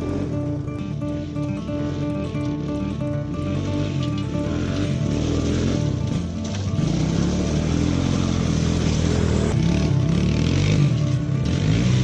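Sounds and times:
atv engine running: 0:00.0 - 0:12.0
background music: 0:00.0 - 0:12.0.

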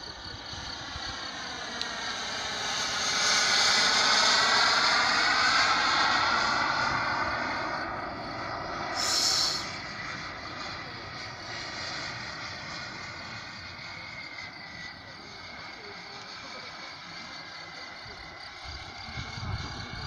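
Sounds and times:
model jet engine whining: 0:00.0 - 0:20.0
burst of hiss: 0:09.0 - 0:09.8.

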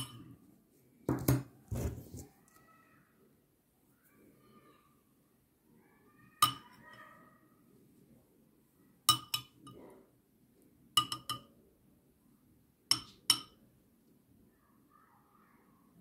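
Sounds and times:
metal spoon clinking ceramic bowl: 0:06.4 - 0:06.9, 0:09.1 - 0:09.8, 0:11.0 - 0:11.5, 0:12.9 - 0:13.6.

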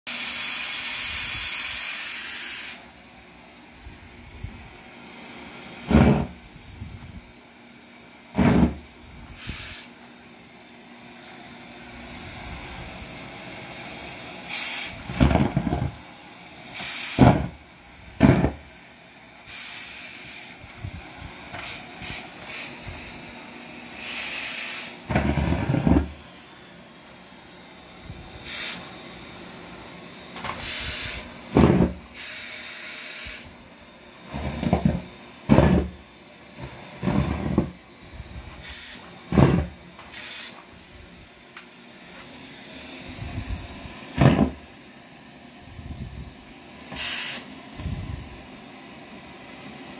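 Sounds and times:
vacuum cleaner running: 0:00.1 - 0:49.9
vacuum sucking up balloon scraps: 0:05.5 - 0:06.9, 0:08.3 - 0:10.0, 0:12.1 - 0:17.6, 0:18.2 - 0:18.7, 0:19.4 - 0:26.4, 0:30.2 - 0:33.6, 0:34.2 - 0:37.8, 0:38.4 - 0:40.6, 0:42.5 - 0:44.7.

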